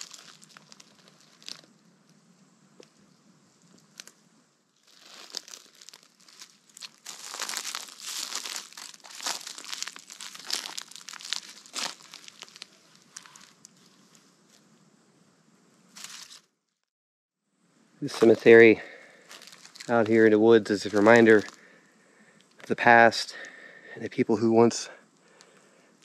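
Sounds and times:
footsteps crunching through dry leaves: 0:00.0 - 0:01.7, 0:04.8 - 0:14.2, 0:16.0 - 0:16.4, 0:18.1 - 0:21.6.

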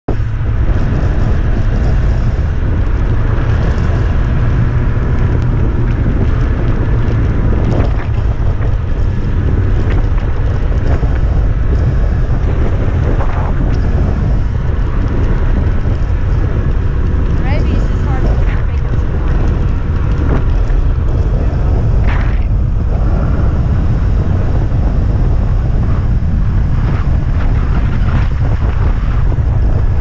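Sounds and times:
snowmobile engine running: 0:00.1 - 0:30.0
wind buffeting microphone: 0:00.1 - 0:30.0.

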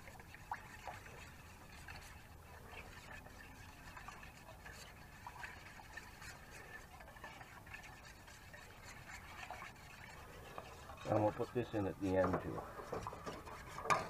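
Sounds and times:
spoon scraping metal saucepan: 0:06.1 - 0:14.0.

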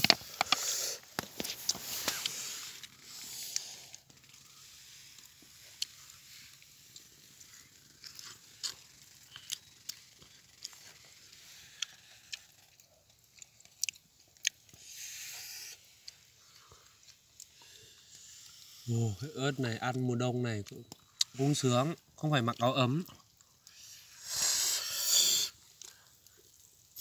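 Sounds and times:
breathy hisses: 0:00.0 - 0:06.9, 0:14.8 - 0:19.3, 0:23.7 - 0:26.6
person chewing meat: 0:05.2 - 0:18.7.

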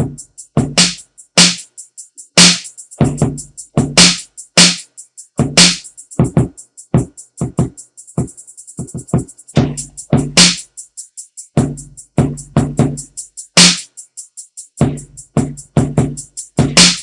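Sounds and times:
closed hi-hat ticks: 0:00.0 - 0:17.0
snare and drum hits: 0:00.8 - 0:01.7, 0:02.4 - 0:02.7, 0:04.0 - 0:04.9, 0:05.6 - 0:07.8, 0:08.8 - 0:10.6, 0:13.6 - 0:13.9, 0:16.6 - 0:17.0.

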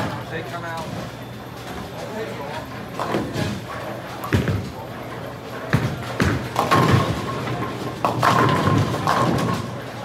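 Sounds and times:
bowling balls rumbling down lanes: 0:05.7 - 0:10.0
bowling pins crashing: 0:05.8 - 0:09.8.

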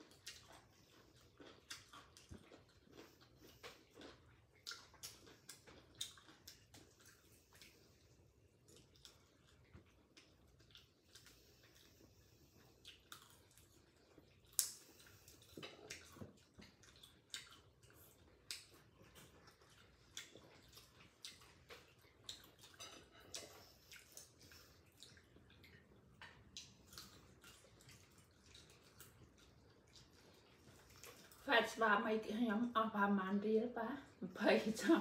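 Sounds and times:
people chewing: 0:00.0 - 0:31.5
lip smacks: 0:10.1 - 0:31.4.

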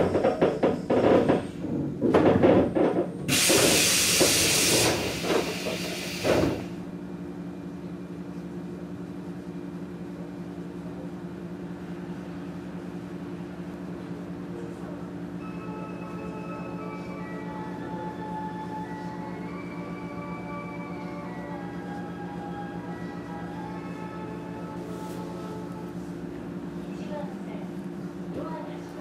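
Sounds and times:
knocking and clatter: 0:00.0 - 0:04.4
train equipment humming: 0:00.0 - 0:29.0
compressed air hissing: 0:03.3 - 0:06.7.

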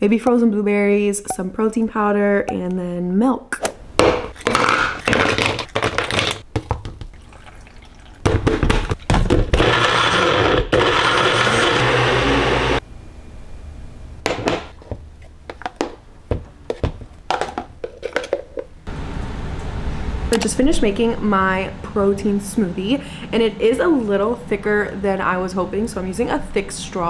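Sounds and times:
blender running: 0:09.5 - 0:12.8.

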